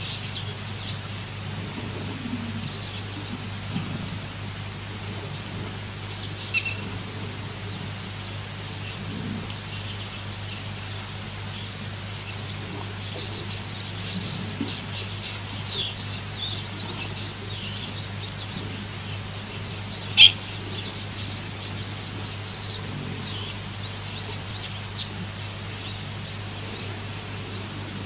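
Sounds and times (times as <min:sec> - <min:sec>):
small birds chirping: 0:00.0 - 0:01.3, 0:05.4 - 0:27.9
steady low hum: 0:00.0 - 0:28.0.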